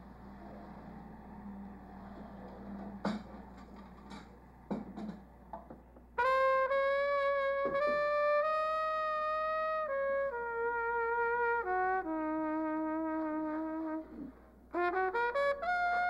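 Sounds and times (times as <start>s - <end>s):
wind instrument slow melody: 6.2s - 16.0s.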